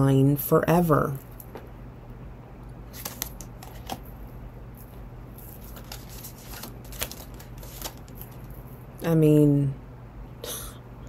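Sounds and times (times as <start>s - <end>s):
faint low hum: 0.0s - 11.0s
cards snapping: 2.9s - 4.0s
cards shuffling and rustling: 2.9s - 4.2s, 4.8s - 8.7s.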